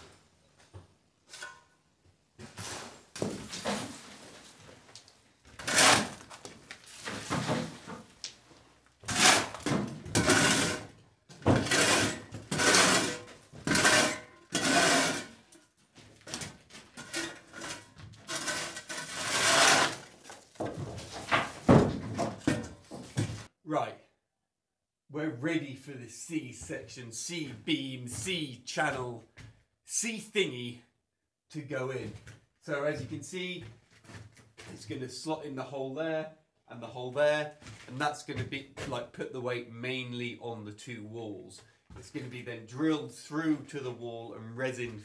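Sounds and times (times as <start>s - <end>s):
metal shovel scraping concrete: 5.6s - 6.3s, 9.0s - 15.4s, 17.0s - 20.2s.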